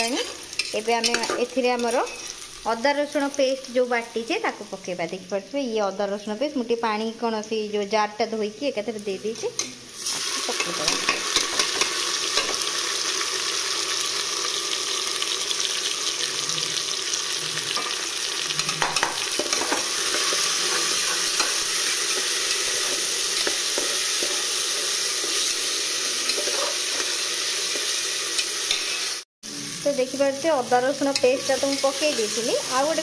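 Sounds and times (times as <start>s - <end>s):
metal spatula scraping pot: 0.0s - 2.4s, 17.6s - 29.2s
paste sizzling in hot oil: 0.0s - 5.2s, 9.8s - 33.0s.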